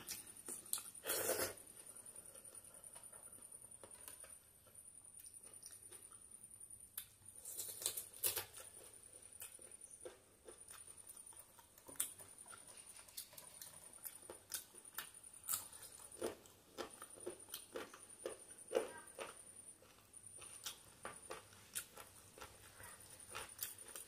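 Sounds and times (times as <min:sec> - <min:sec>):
wet chewing: 0:07.0 - 0:24.0.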